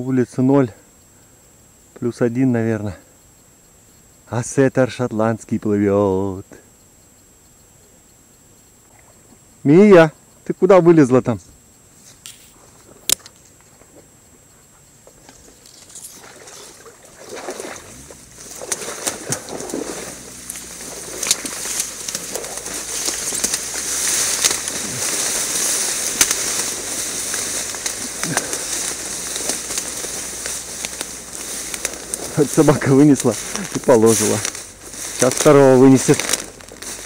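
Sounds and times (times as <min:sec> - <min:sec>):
rustling through dry reeds: 0:12.0 - 0:37.0
splashing in shallow water: 0:15.8 - 0:35.5.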